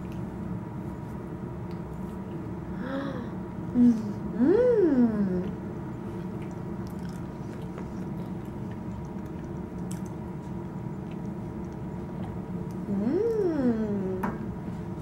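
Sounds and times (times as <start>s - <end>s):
steady background hum: 0.0s - 15.0s
person chewing banana: 6.1s - 13.5s.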